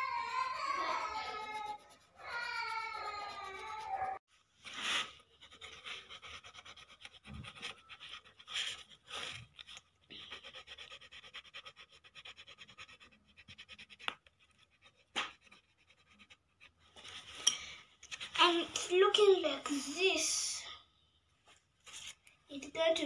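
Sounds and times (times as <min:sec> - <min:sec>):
pencil scribbling on paper: 0:00.0 - 0:17.3
pencil tapping: 0:13.8 - 0:14.4.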